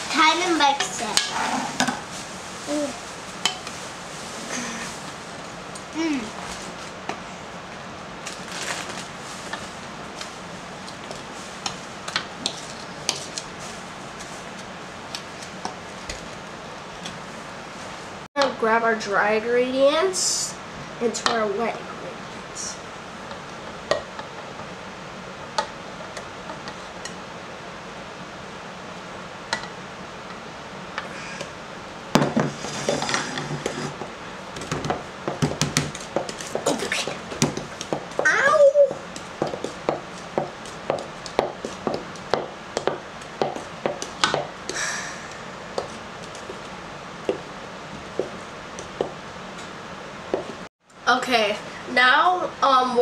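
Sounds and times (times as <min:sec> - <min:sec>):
steady background hiss: 0:00.0 - 0:53.0
wooden spoon scraping bowl: 0:00.8 - 0:02.1, 0:32.5 - 0:34.1.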